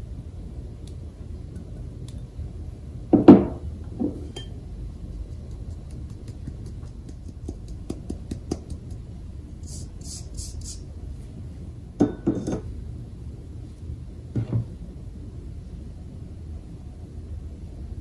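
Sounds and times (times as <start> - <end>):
kitchenware clinking: 12.0 - 12.7.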